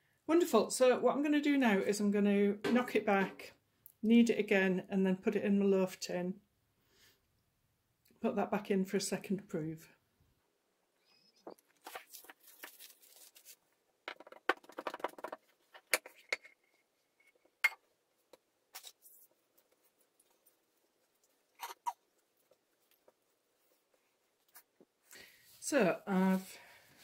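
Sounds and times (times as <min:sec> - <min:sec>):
cling film crinkling: 0:11.4 - 0:13.8.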